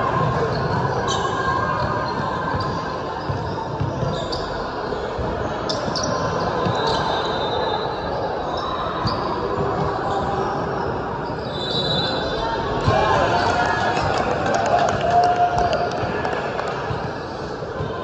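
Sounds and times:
sneakers squeaking: 0.0s - 14.2s
murmur of spectators: 0.0s - 18.0s.

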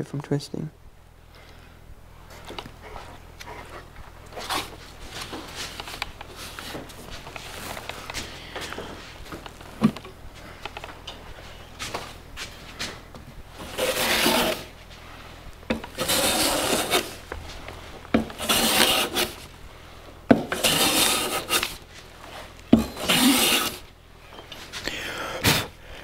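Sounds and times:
hand plane shaving wood: 13.6s - 14.8s, 15.7s - 19.6s, 20.3s - 23.9s
plane knocking on wood: 15.7s - 17.2s, 18.1s - 19.4s, 20.3s - 21.8s, 22.7s - 23.8s.

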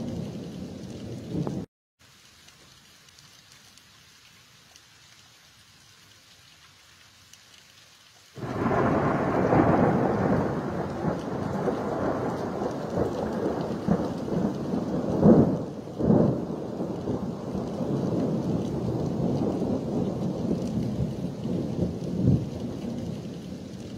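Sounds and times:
thunder rumbling: 0.0s - 1.7s, 8.4s - 23.9s
rain hissing: 0.0s - 23.9s.

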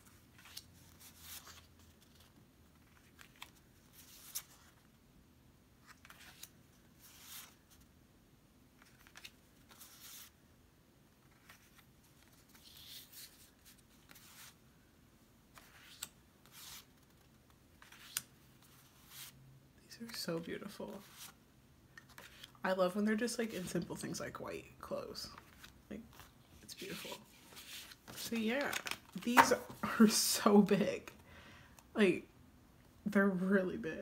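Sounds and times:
photo cards rustling and sliding: 0.0s - 4.9s, 5.8s - 7.9s, 8.7s - 10.4s, 11.2s - 14.7s, 15.5s - 19.4s, 20.6s - 22.6s, 25.3s - 30.2s.

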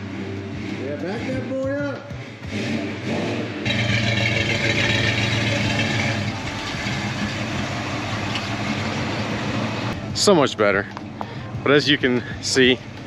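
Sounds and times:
car engine idling: 3.7s - 13.0s.

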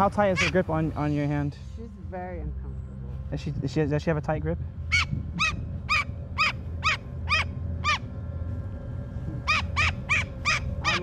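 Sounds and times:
low hum: 0.0s - 11.0s
cockatoo sharp calls: 0.2s - 0.6s, 4.9s - 8.1s, 9.4s - 11.0s.

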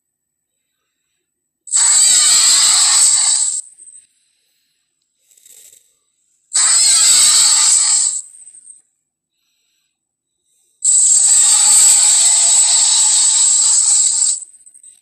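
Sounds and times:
cartoon dinosaur roar: 1.7s - 3.6s, 6.6s - 8.2s, 10.9s - 14.4s.

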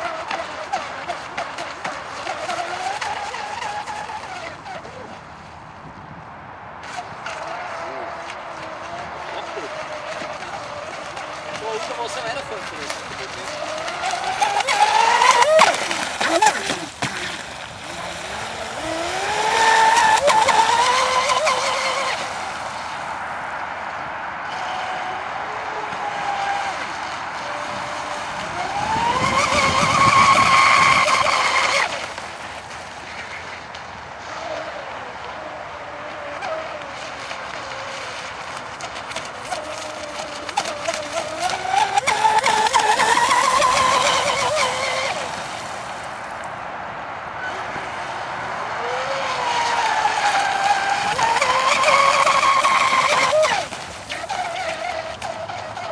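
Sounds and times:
toy boat motor whine: 0.0s - 5.5s, 6.8s - 46.5s, 47.4s - 55.9s.

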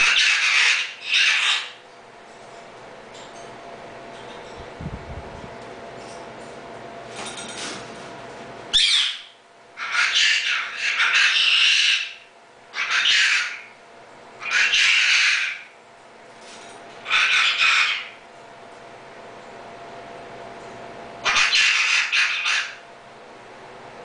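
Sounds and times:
cockatoo squawking: 0.0s - 1.8s, 8.7s - 13.8s, 14.4s - 15.8s, 17.0s - 18.2s, 21.2s - 22.8s.

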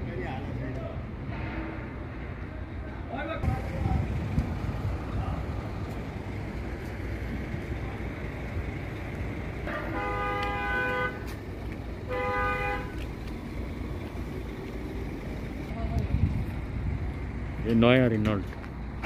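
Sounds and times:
steady low rumble: 0.0s - 19.0s
vehicle horn blasts: 1.3s - 2.0s, 9.6s - 11.3s, 12.0s - 13.0s.

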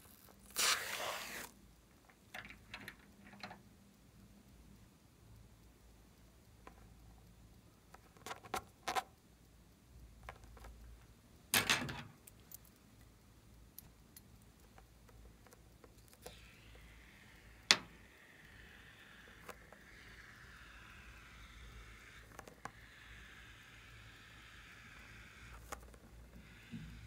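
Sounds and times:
soft squishing hiss of foam: 0.0s - 3.3s, 12.2s - 27.0s.

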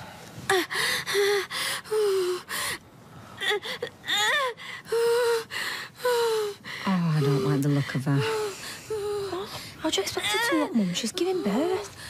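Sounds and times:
girl gasping and moaning: 0.5s - 2.8s, 3.4s - 12.0s
girl crying out: 10.2s - 10.8s.

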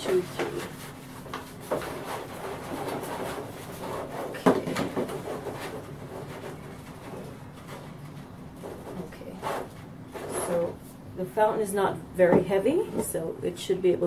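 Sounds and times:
plastic trays scraping: 0.0s - 10.8s.

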